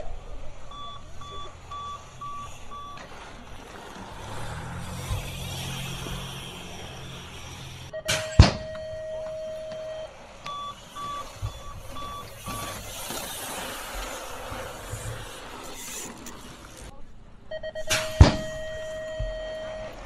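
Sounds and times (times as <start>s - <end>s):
short electronic beeps: 0.7s - 3.0s, 7.9s - 13.0s, 17.5s - 20.0s.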